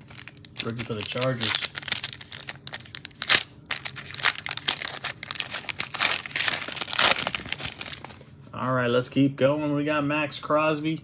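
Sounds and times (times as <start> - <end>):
foil pack crinkling: 0.0 - 8.3.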